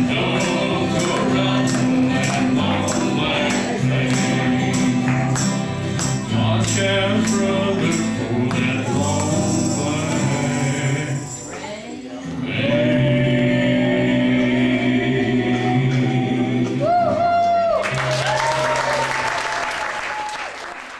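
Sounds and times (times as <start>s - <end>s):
tambourine hits: 0.0s - 11.9s
strummed acoustic guitars: 0.0s - 17.7s
voices singing in harmony: 0.0s - 17.9s
applause: 17.7s - 20.9s.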